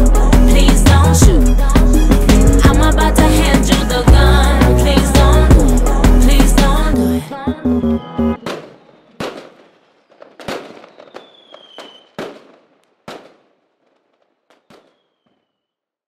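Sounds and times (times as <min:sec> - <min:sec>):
song: 0:00.0 - 0:08.4
falling firework whistle: 0:08.1 - 0:13.4, 0:14.5 - 0:15.8
fireworks bangs: 0:08.4 - 0:15.7.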